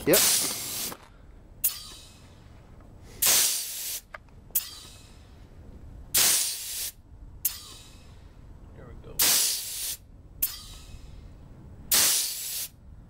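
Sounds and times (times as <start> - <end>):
pump exhaust air hiss: 0.0 - 2.4, 3.0 - 5.4, 6.1 - 8.2, 9.2 - 11.2, 11.9 - 12.8
short sharp air puffs: 0.0 - 5.4, 6.1 - 8.4, 9.2 - 12.8.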